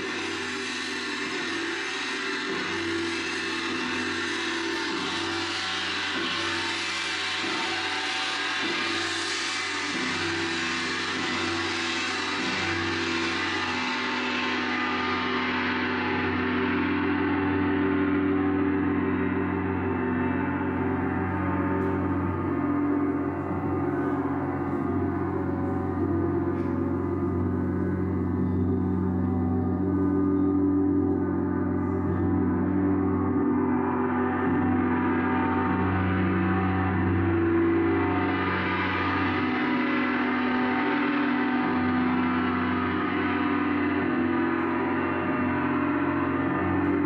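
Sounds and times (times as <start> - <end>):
gong ringing: 12.1 - 47.0.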